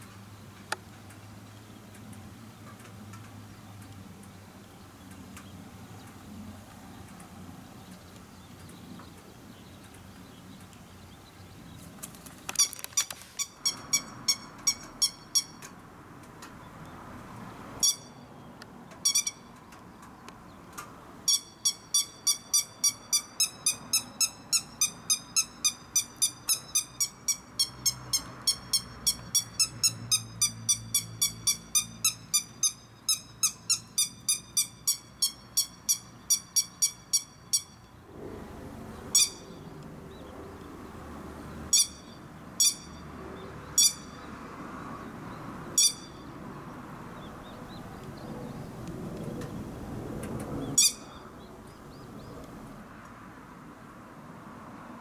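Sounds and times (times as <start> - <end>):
lapwing alarm calls: 12.5 - 15.6, 17.8 - 18.2, 19.0 - 19.5, 21.3 - 37.9, 39.0 - 39.8, 41.7 - 43.0, 43.6 - 44.3, 45.7 - 46.3, 50.6 - 52.3.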